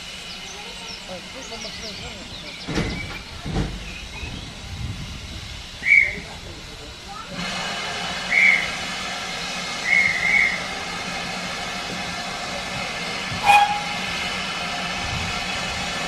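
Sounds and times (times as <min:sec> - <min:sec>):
steam hissing: 0:00.0 - 0:16.0
high steam whistle blasts: 0:08.2 - 0:08.9, 0:09.8 - 0:10.7, 0:13.3 - 0:14.7.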